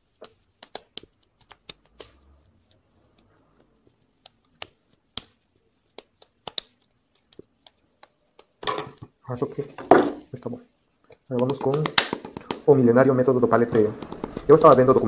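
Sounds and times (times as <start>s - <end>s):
hands patting wet clay: 0.0s - 8.6s, 10.9s - 12.8s, 13.8s - 15.0s.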